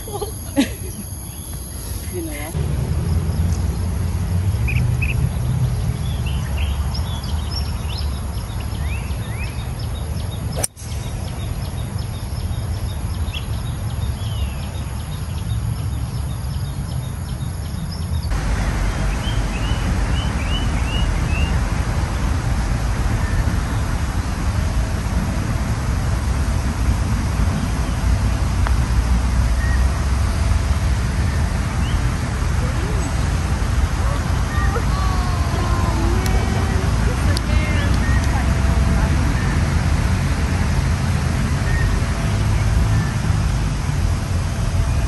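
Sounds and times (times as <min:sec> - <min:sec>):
birds chirping: 0:00.0 - 0:21.6, 0:32.7 - 0:39.6
low wind rumble on microphone: 0:00.0 - 0:45.0
golf club striking ball: 0:10.6 - 0:11.1.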